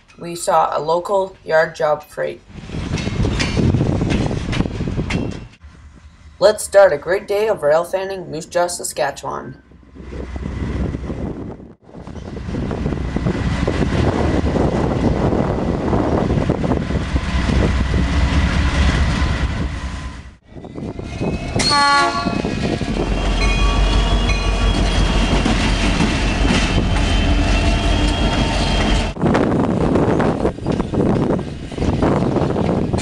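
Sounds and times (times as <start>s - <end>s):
train rumble and rail clatter: 0.0s - 8.6s, 9.6s - 33.0s
locomotive horn blast: 21.6s - 22.5s
high ringing tones: 23.1s - 28.9s.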